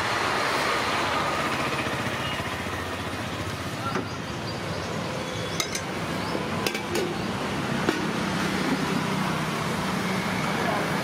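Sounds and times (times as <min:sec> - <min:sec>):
ladle clinking against metal pots: 0:05.5 - 0:06.0.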